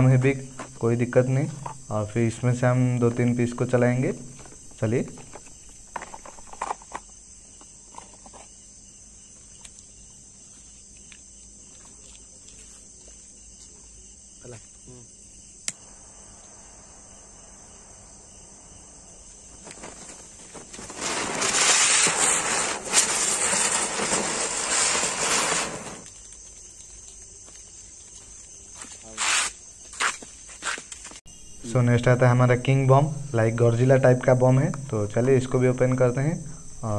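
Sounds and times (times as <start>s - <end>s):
crickets chirping: 0.0s - 36.9s
spinning fireworks hissing: 15.7s - 26.3s.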